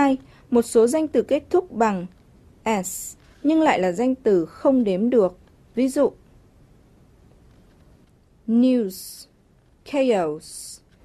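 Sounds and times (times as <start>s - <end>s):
person speaking: 0.0s - 6.2s
faint background hiss: 0.0s - 11.0s.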